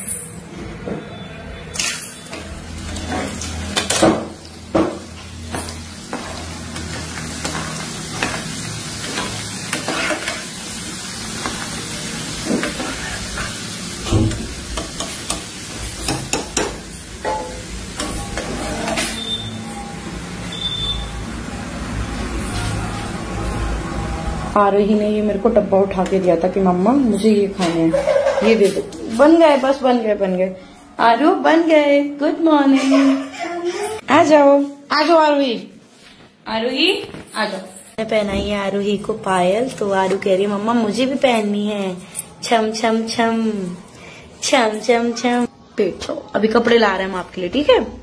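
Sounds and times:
metal spatula scraping a pan: 1.7 - 4.0, 5.6 - 10.6, 11.4 - 13.7
snacks sizzling in hot oil: 1.8 - 24.6.

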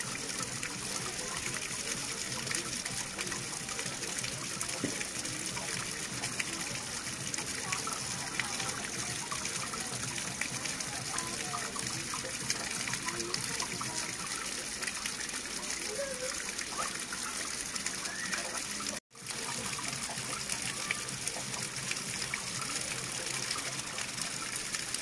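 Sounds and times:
running water gushing: 0.0 - 25.0.

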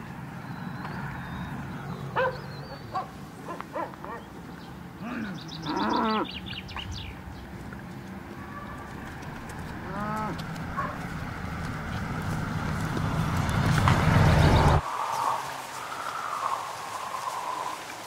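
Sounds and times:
birds chirping: 0.0 - 17.8
farm animals calling: 5.0 - 7.0, 8.3 - 14.8.

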